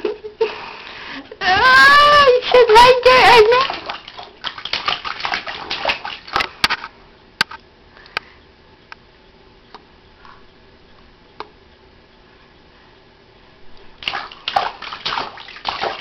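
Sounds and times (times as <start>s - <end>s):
baby splashing water: 2.4s - 6.4s, 14.0s - 16.0s.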